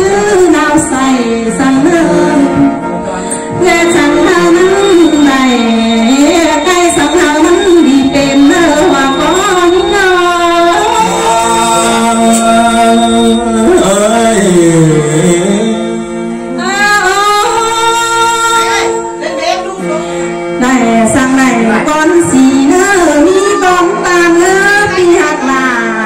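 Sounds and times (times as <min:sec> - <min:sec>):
folk singing into a microphone: 0:00.0 - 0:19.1.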